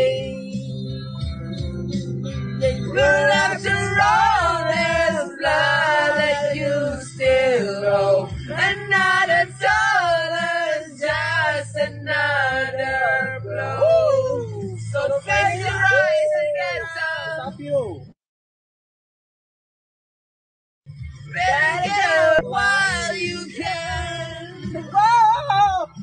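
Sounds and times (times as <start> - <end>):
group of people singing: 0.0 - 0.8, 2.6 - 17.6, 21.3 - 25.8
backing music: 0.0 - 18.1, 20.9 - 26.0.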